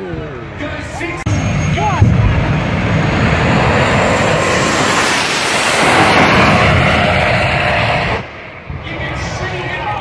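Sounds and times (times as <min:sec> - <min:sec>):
dragster engine at full throttle: 0:01.3 - 0:08.6.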